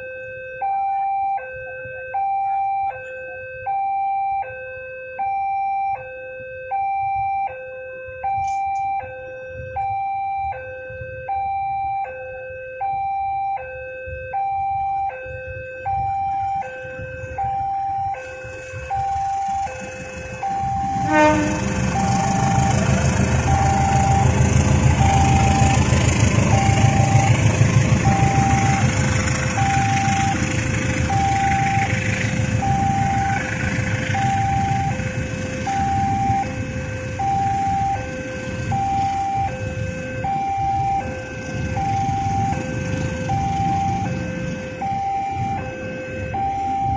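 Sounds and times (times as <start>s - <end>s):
train wheels rumbling on rails: 16.0s - 45.9s.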